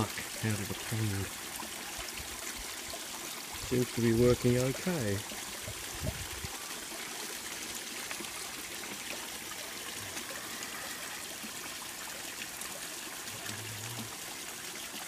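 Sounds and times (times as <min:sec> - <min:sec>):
filter dripping: 0:00.0 - 0:15.0
water trickling and splashing: 0:00.0 - 0:15.0.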